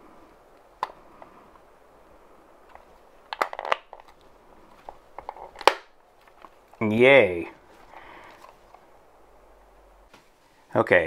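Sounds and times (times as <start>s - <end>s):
plastic case clicks and creaks: 0.8s - 1.3s, 2.6s - 6.8s
sharp plastic snap: 5.2s - 6.0s.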